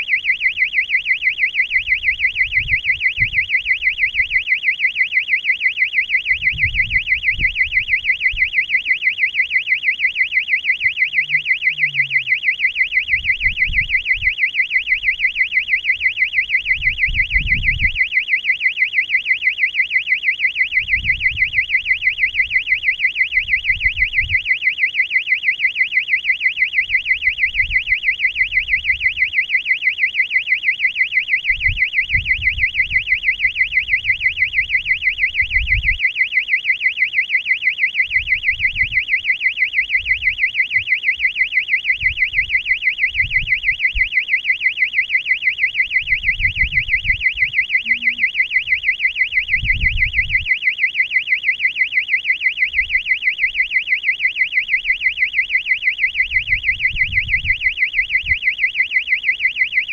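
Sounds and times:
electronic beeper warbling tone: 10.8s - 13.7s, 47.5s - 48.6s.

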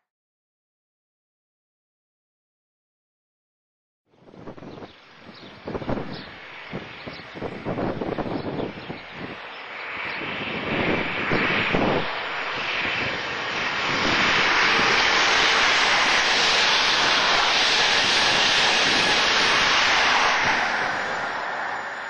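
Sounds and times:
train passing at speed: 4.9s - 22.0s.

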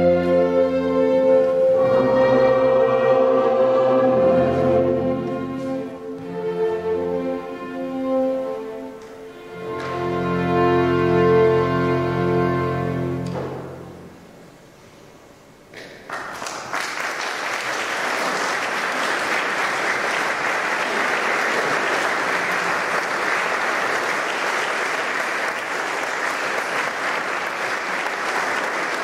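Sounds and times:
audience applause: 16.0s - 29.0s.

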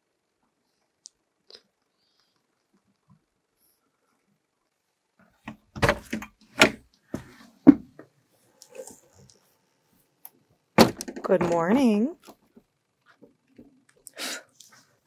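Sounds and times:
door clunks: 5.5s - 6.8s, 10.8s - 11.9s.

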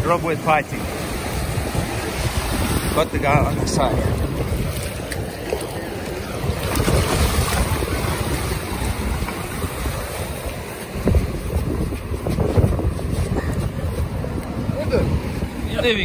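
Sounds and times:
surf washing through shallows: 0.0s - 16.0s
wind buffeting microphone: 0.0s - 16.0s.

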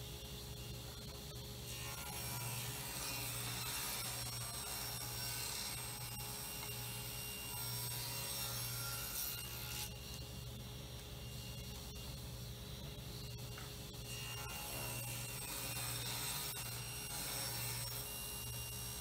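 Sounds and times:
table saw motor hum: 0.0s - 19.0s
saw cutting wood: 1.6s - 10.6s, 13.6s - 19.0s.

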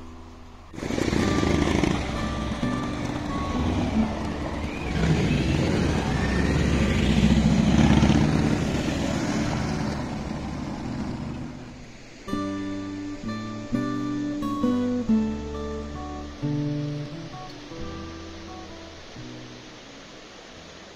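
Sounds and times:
acoustic guitar music: 0.0s - 20.9s
car passing over cobblestones: 0.7s - 12.4s
motorcycle engine passing: 0.8s - 12.3s.

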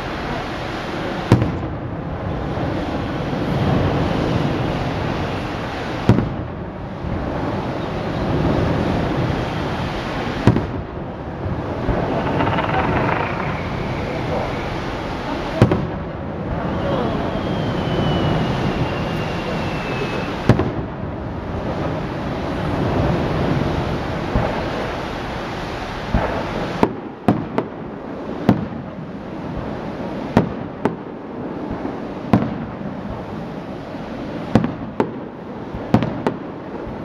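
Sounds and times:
echoing rumble and crackle: 1.0s - 37.0s
firework shells bursting: 11.5s - 15.9s
falling firework whistles: 11.8s - 15.9s, 16.5s - 20.8s.

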